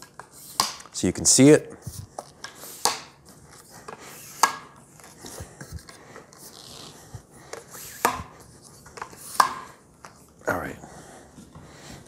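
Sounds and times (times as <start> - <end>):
tripod rubbing noise: 5.2 - 9.5.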